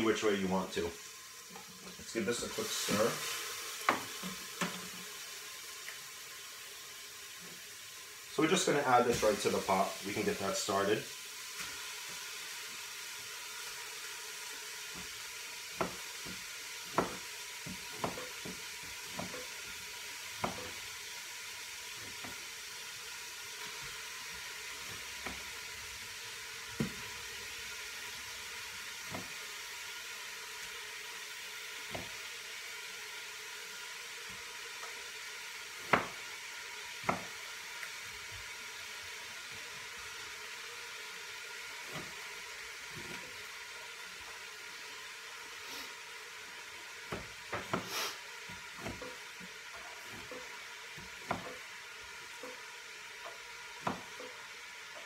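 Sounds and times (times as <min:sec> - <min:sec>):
beef sizzling in a pot: 0:00.0 - 0:55.0
knife knocking on cutting board: 0:51.2 - 0:51.6.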